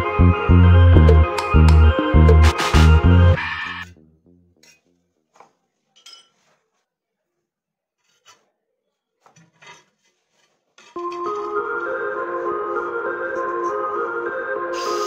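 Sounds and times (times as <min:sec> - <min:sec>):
background music: 0:00.0 - 0:04.6, 0:11.0 - 0:15.0
faint scraping and rubbing: 0:08.0 - 0:11.0.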